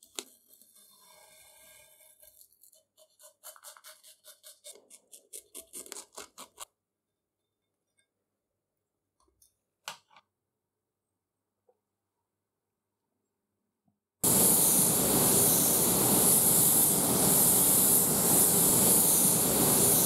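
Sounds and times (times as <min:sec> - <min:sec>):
blade scratching tape: 0:02.0 - 0:06.7.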